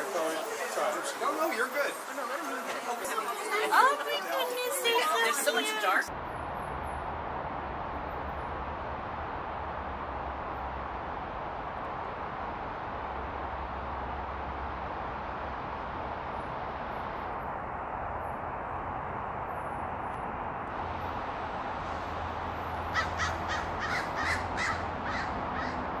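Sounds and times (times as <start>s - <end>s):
steady rushing background: 4.9s - 26.0s.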